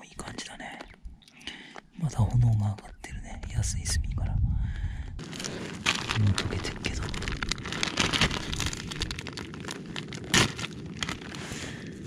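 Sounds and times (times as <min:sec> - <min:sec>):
charcoal fire crackling: 0:05.2 - 0:12.0.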